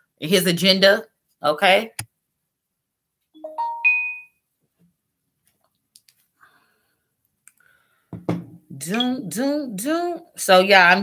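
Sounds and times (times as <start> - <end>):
notification chime rising tones: 3.4 - 4.3.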